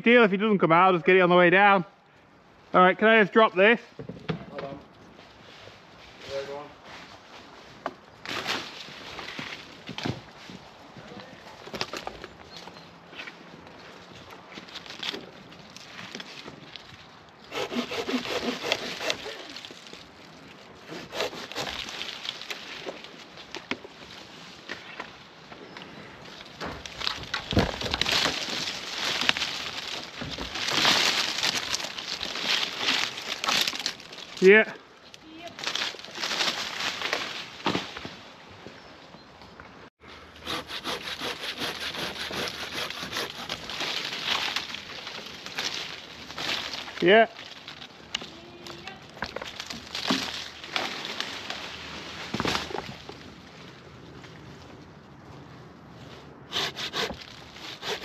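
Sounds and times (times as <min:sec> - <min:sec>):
handsaw rasping through wood: 0:17.5 - 0:19.4, 0:20.9 - 0:21.9, 0:40.4 - 0:43.6, 0:56.5 - 0:58.0.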